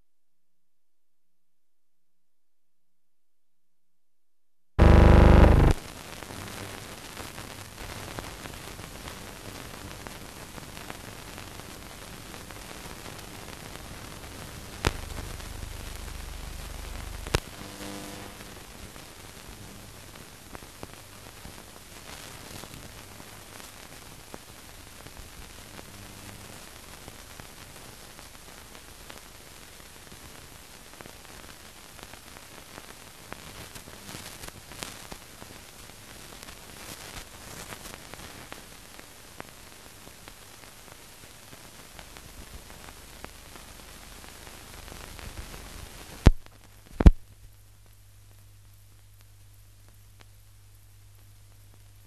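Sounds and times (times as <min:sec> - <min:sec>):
low hum: 0:04.8 - 0:05.8, 0:14.9 - 0:17.4
film soundtrack hiss and crackle: 0:04.8 - 0:52.0.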